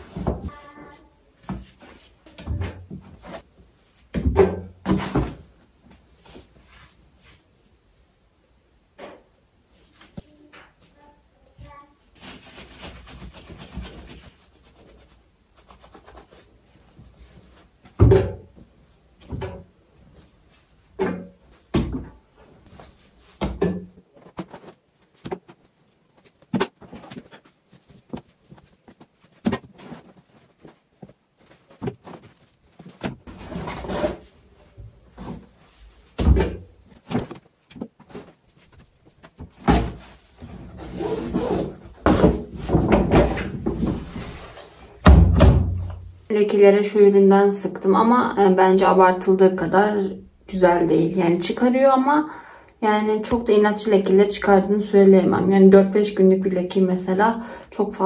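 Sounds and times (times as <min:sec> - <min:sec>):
fabric rustling: 0:24.1 - 0:34.8.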